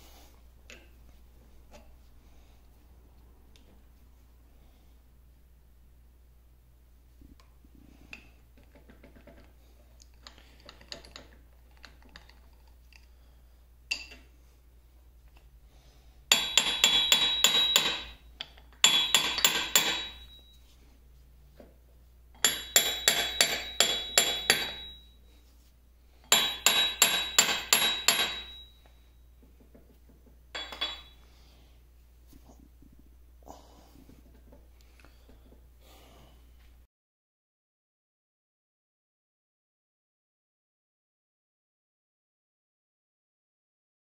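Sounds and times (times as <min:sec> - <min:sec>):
faint clicks of parts handled: 0:07.3 - 0:13.2, 0:15.2 - 0:15.5
hammer striking metal: 0:16.3 - 0:18.2, 0:18.8 - 0:20.5, 0:22.4 - 0:25.0, 0:26.3 - 0:28.8, 0:30.6 - 0:31.2.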